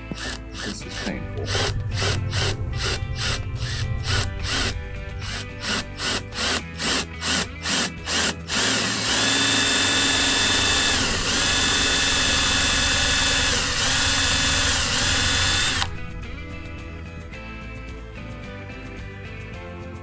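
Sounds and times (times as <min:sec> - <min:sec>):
cordless drill boring through plastic: 0:00.0 - 0:15.9.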